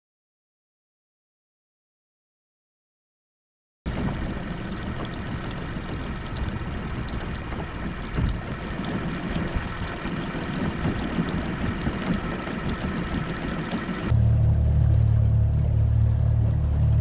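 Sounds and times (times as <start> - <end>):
water splashing past hull: 3.9 - 14.1
outboard motor running: 3.9 - 17.0.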